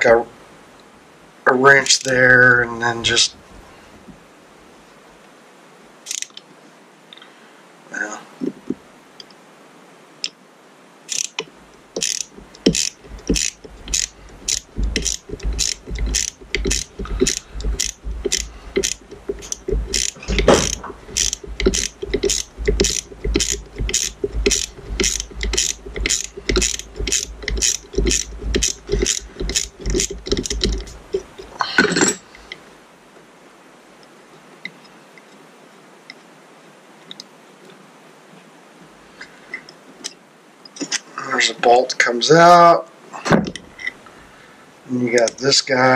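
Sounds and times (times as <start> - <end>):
socket ratchet clicking: 6.1 - 6.4, 11.1 - 32.6.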